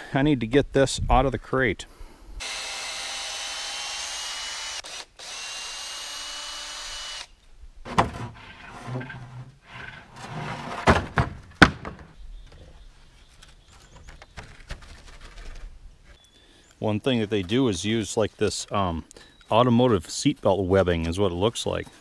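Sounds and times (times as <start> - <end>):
cordless drill running: 2.4 - 7.3
wooden boards knocking: 7.9 - 9.4, 10.3 - 12.2.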